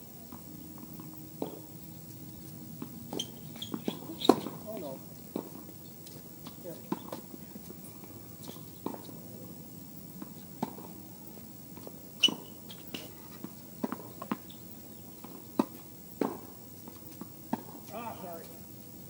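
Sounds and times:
tennis ball bouncing on court: 2.8s - 5.6s, 6.4s - 7.2s, 10.2s - 11.0s, 11.8s - 14.5s, 15.2s - 18.5s.

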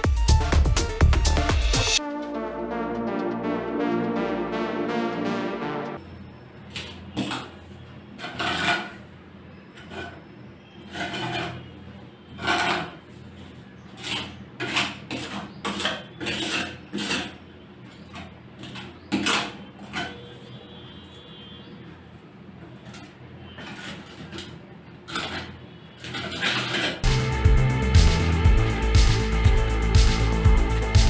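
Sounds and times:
putty knife scraping concrete: 8.2s - 9.1s, 10.8s - 17.4s, 22.9s - 27.0s.

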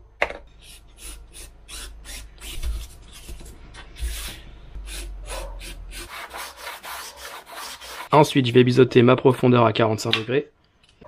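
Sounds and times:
sandpaper rubbing foam: 0.6s - 8.1s.

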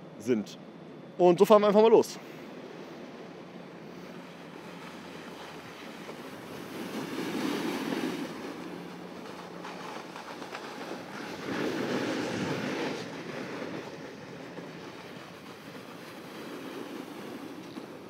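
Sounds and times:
snowboard scraping over snow: 4.2s - 18.0s.

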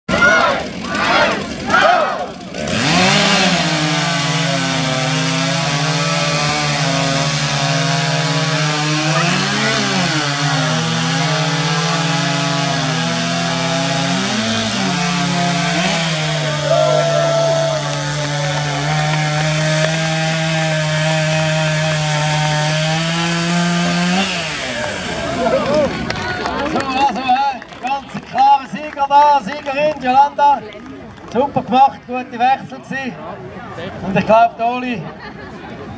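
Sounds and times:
chainsaw cutting log: 0.1s - 27.1s.

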